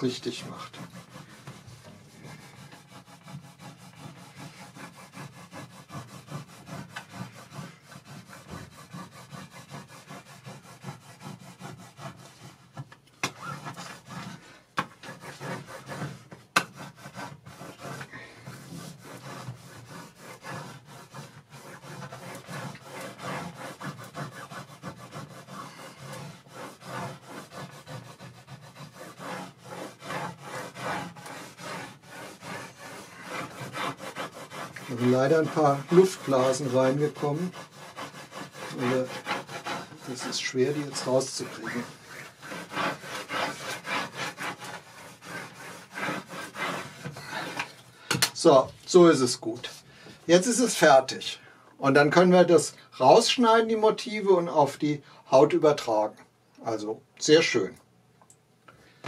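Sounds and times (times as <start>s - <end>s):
plastic set square scraping: 10.8s - 48.6s.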